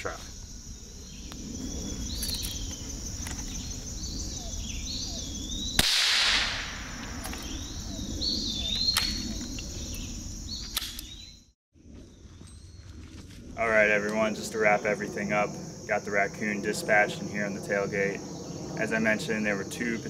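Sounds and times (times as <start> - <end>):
bird singing: 0.0 - 5.8, 6.8 - 13.0
insects trilling: 0.0 - 20.0
gunshot crack: 5.8 - 7.5.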